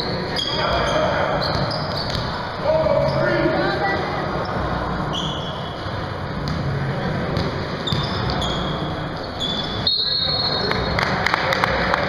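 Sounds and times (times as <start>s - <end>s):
sneakers squeaking on floor: 0.0s - 3.5s, 4.4s - 6.7s, 7.3s - 11.1s
murmur of people in a hall: 0.0s - 12.0s
basketball dribbling: 7.3s - 8.8s.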